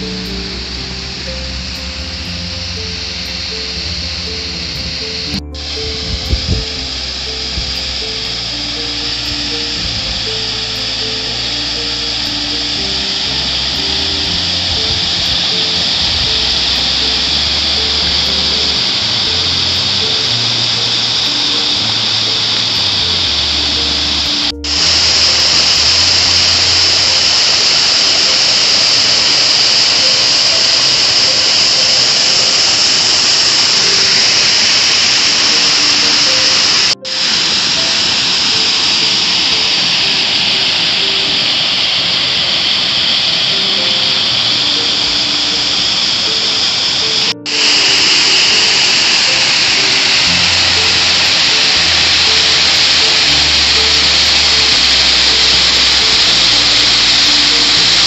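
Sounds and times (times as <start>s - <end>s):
faint background music: 0.0s - 58.0s
waterfall rushing over rock: 0.0s - 58.0s.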